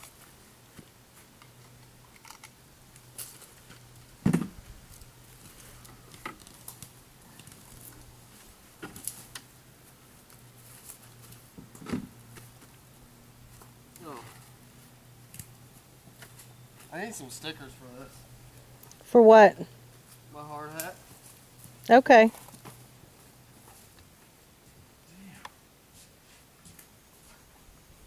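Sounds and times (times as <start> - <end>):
loud dull thump: 4.2 - 4.6.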